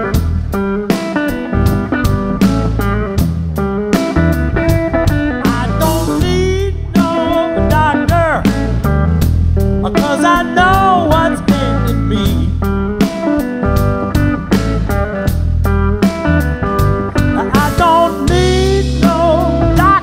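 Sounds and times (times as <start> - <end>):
bass guitar: 0.0 - 20.0
drum beat: 0.0 - 20.0
electric guitar lead: 0.0 - 20.0.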